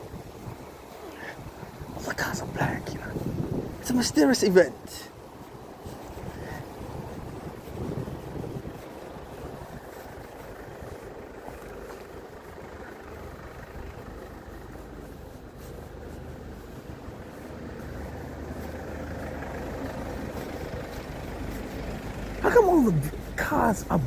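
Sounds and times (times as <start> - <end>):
car engines idling: 0.0 - 24.0.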